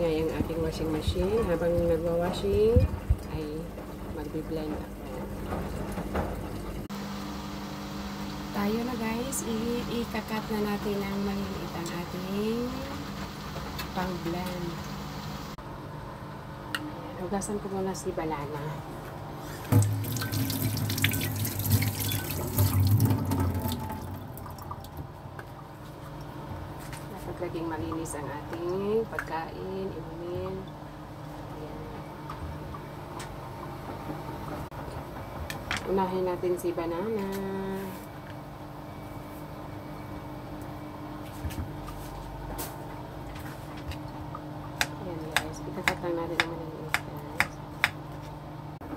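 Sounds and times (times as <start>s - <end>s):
washing machine running: 0.0s - 15.7s, 18.4s - 48.9s
tap water splashing into sink: 19.7s - 25.6s.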